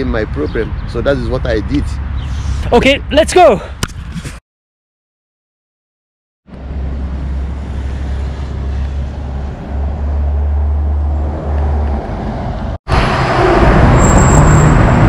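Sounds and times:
road traffic rumble: 0:00.0 - 0:03.2, 0:06.5 - 0:15.0.

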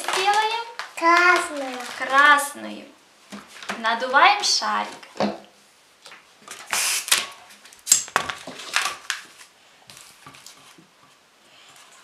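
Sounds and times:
balloon rubbing against hands: 0:06.7 - 0:07.2.

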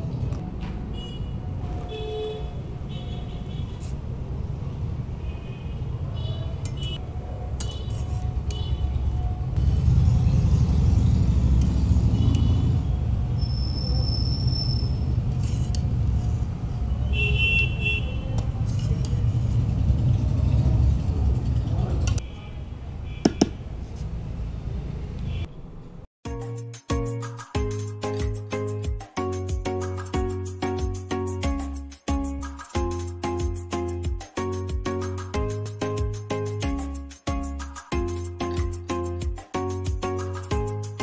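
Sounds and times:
road traffic rumble: 0:00.0 - 0:22.2.

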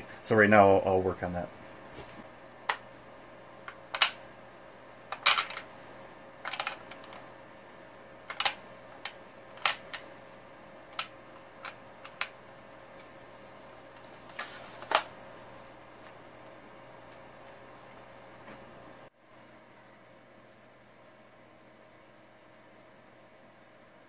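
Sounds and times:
chips clicking on bench and tray: 0:03.7 - 0:04.2, 0:10.9 - 0:12.4.

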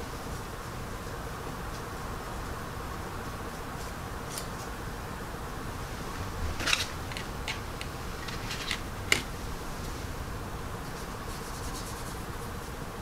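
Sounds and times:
faint steady hum: 0:00.0 - 0:13.0
plastic parts clicking and tapping: 0:06.6 - 0:09.3.

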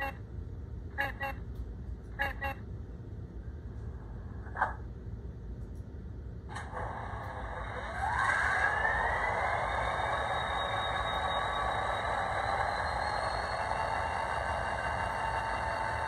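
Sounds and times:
diesel engine start-up whine: 0:06.5 - 0:16.0.

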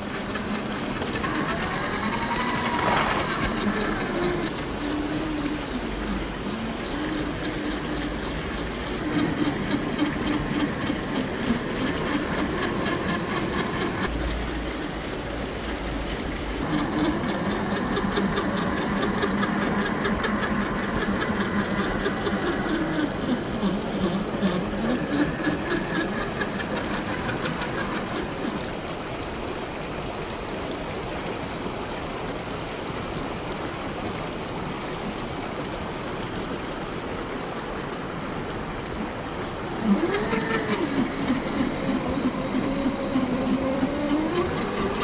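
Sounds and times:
electric motor whining: 0:00.0 - 0:15.4, 0:16.6 - 0:28.7, 0:39.6 - 0:45.0
stream water rushing: 0:00.0 - 0:45.0.

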